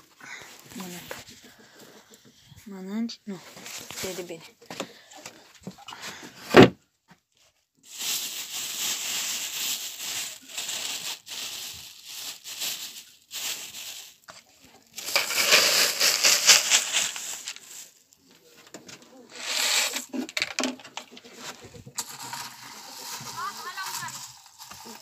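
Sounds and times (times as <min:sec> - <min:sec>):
plastic bag rustling: 0:03.4 - 0:04.4, 0:07.8 - 0:18.4, 0:19.1 - 0:25.0.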